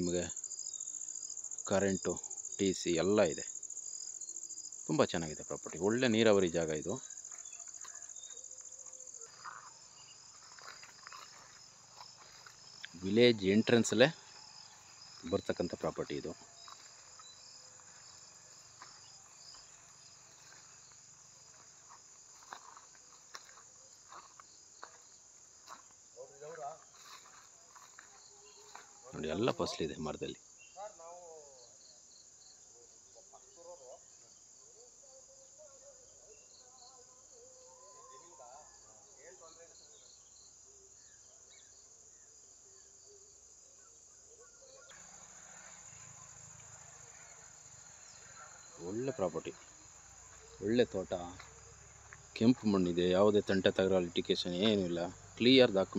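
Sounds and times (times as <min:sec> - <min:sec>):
crickets chirring: 0:00.0 - 0:55.9
high-pitched insect chorus: 0:00.0 - 0:55.9.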